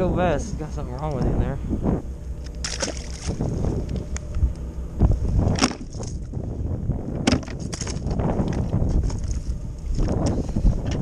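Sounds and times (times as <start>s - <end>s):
wind rumbling on microphone: 0.0s - 11.0s
water splashing: 2.5s - 3.6s
sharp knocks: 7.2s - 8.0s.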